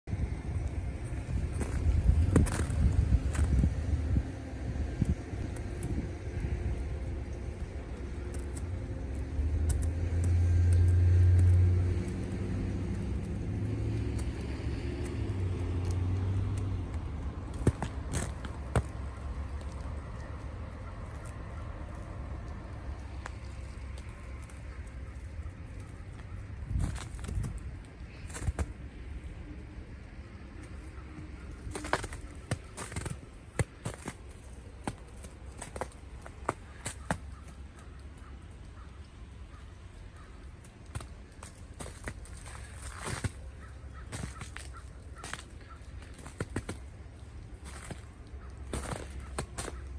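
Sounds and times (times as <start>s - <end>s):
low engine rumble: 0.0s - 49.9s
paws crunching on icy snow: 0.7s - 4.4s, 7.1s - 49.9s.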